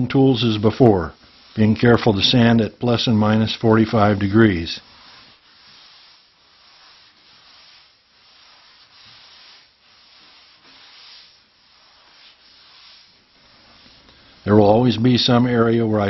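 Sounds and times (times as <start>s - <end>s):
sanding block rasping: 0.1s - 13.8s.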